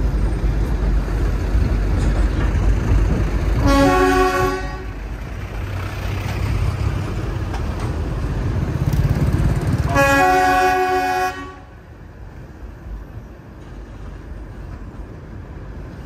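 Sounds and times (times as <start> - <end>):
train rumbling: 0.0 - 16.0
train horn: 3.6 - 5.0, 9.8 - 11.8.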